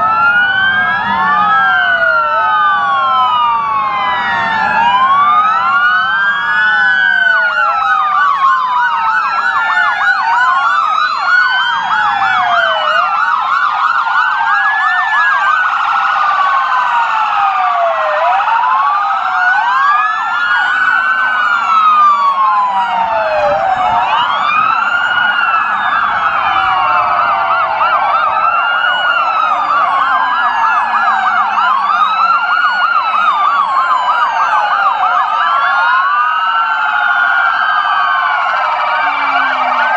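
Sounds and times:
police sirens wailing: 0.0s - 39.9s.

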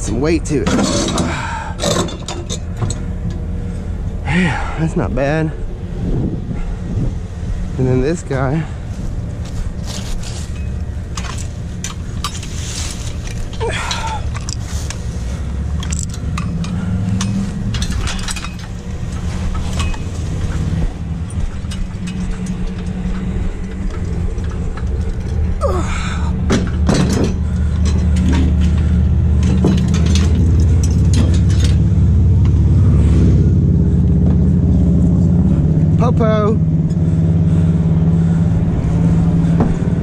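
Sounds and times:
truck engine idling: 0.0s - 40.0s
metal clinks and knocks: 0.6s - 3.5s, 9.3s - 25.6s, 26.4s - 32.6s.

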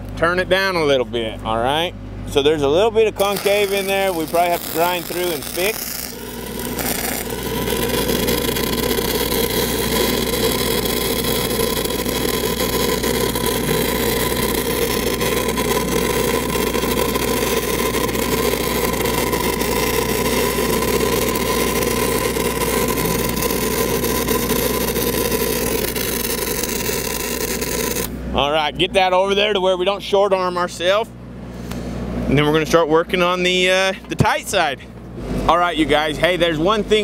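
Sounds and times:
welder engine hum: 2.4s - 32.7s
welding arc crackling hiss: 3.2s - 28.2s.

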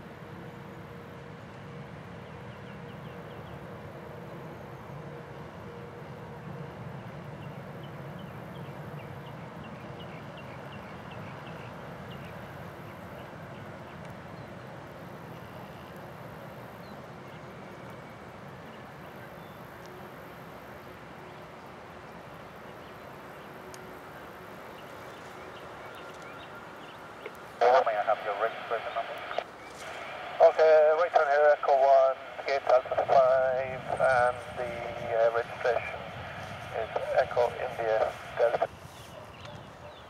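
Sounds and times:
distant jet airliner idling: 0.0s - 40.0s.

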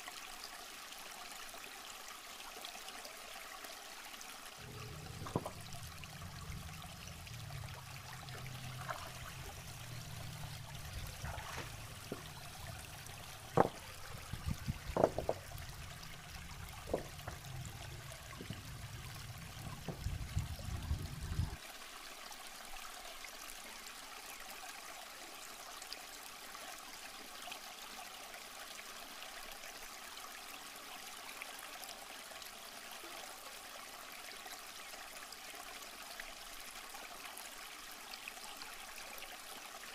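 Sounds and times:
river water running: 0.0s - 39.9s
low rumble: 4.6s - 21.6s
stones knocking and splashing: 4.8s - 5.9s, 8.7s - 18.8s.

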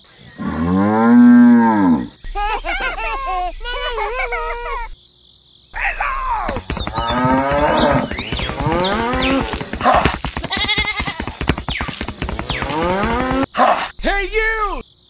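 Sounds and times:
cows mooing: 5.8s - 13.5s.

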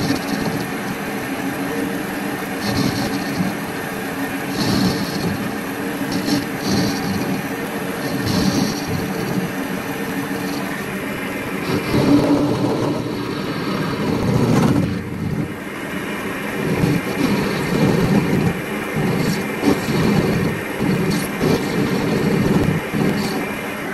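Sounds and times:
metal lathe humming: 0.0s - 23.9s.

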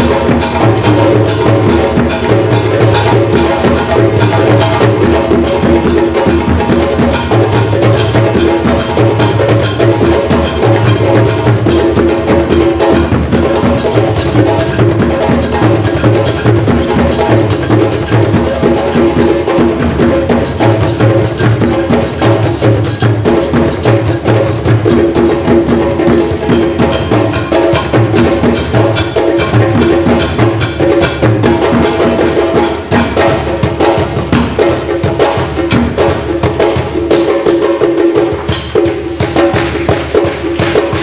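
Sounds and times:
djembes struck by hand: 0.0s - 41.0s
standing drum played with sticks: 0.0s - 41.0s.

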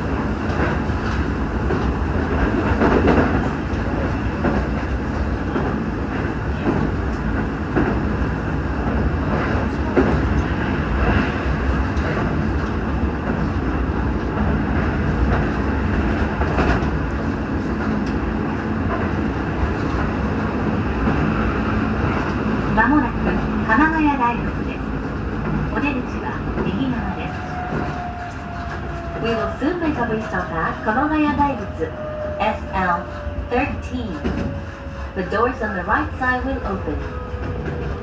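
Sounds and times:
train wheels rumbling on rail: 0.0s - 38.0s
clacks over rail joints: 0.4s - 8.2s, 8.8s - 20.1s.

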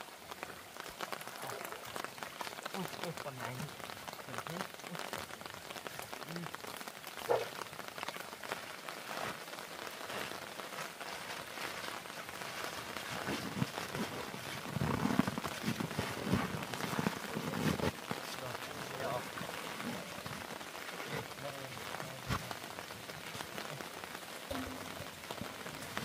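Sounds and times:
rain pattering: 0.0s - 26.0s.

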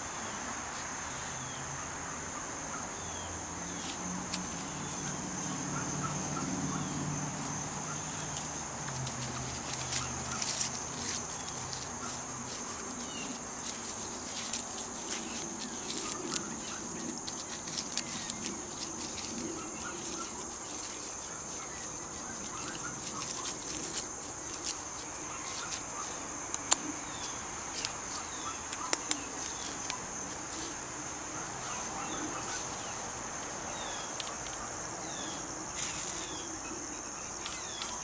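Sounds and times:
high insect drone: 0.0s - 38.0s
sharp clicks and rustles: 8.1s - 30.8s.

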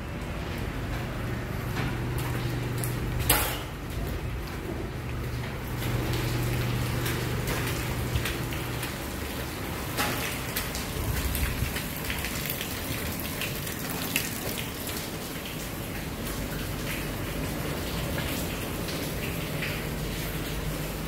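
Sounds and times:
water dripping onto puddled concrete: 2.0s - 21.0s.

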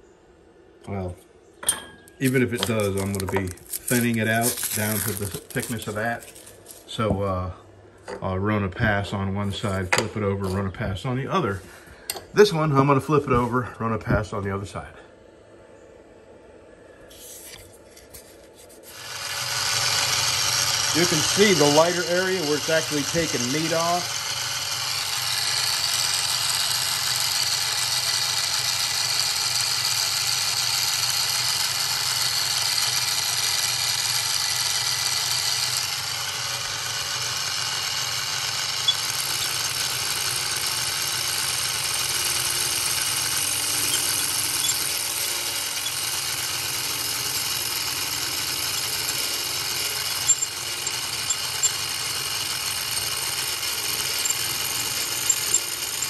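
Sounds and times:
drill press spinning: 1.6s - 7.2s, 18.2s - 56.0s
cutter shaving wood hiss: 2.2s - 7.5s, 17.0s - 56.0s.

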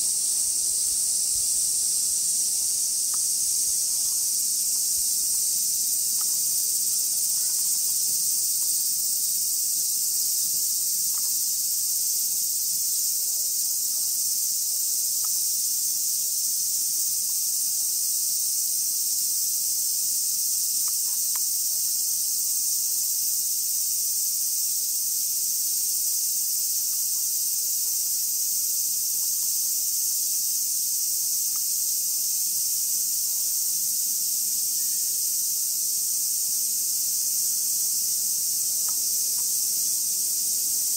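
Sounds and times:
cicadas droning: 0.0s - 40.9s.

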